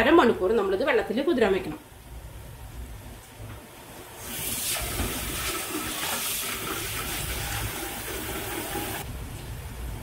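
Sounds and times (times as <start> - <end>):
tap water pouring into pot: 4.3 - 9.0.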